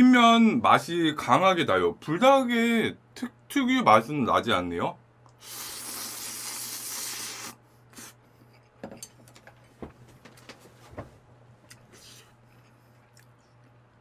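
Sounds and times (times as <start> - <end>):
person slurping noodles: 5.4 - 8.2.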